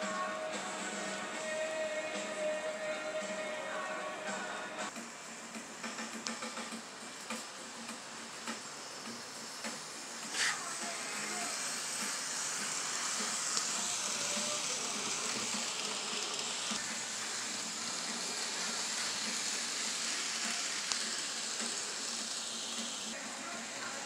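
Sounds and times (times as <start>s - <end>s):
model train running on track: 4.9s - 24.0s.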